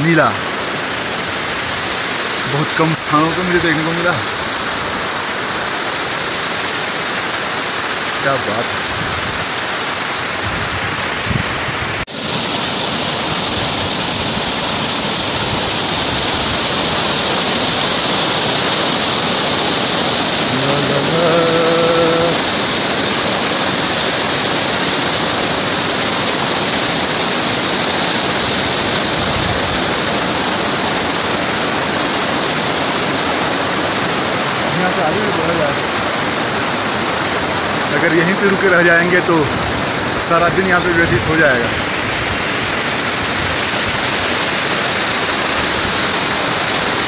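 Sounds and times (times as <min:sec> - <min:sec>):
mountain stream rushing over boulders: 0:00.0 - 0:47.0
faint voice-like call: 0:20.5 - 0:22.5.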